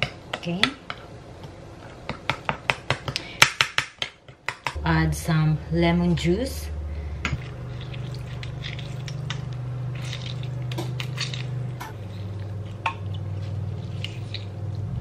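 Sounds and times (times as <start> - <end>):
steady low hum: 4.7 - 15.0
juice dripping into bowl: 7.3 - 14.5
lemon squishing: 7.4 - 14.8.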